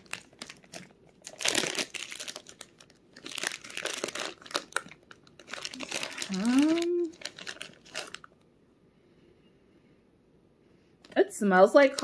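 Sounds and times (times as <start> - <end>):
plastic wrapping crinkling: 0.0 - 8.4, 11.8 - 12.0.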